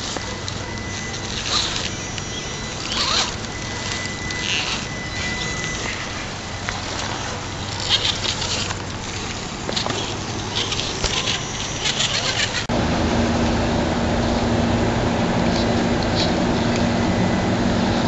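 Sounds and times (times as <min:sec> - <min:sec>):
rc car motor whine: 0:00.0 - 0:12.8
tires grinding on stone: 0:00.0 - 0:17.0
loud steady hum: 0:00.0 - 0:18.0.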